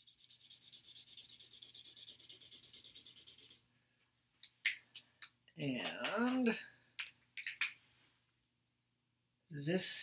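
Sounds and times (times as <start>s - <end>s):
highlighter scratching on paper: 0.0s - 3.6s.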